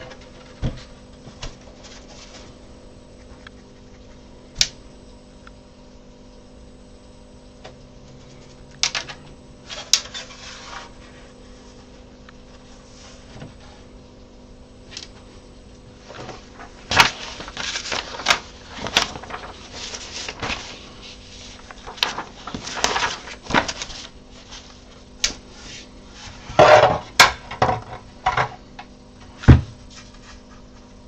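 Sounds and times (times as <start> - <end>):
paper rustling: 16.0 - 25.9.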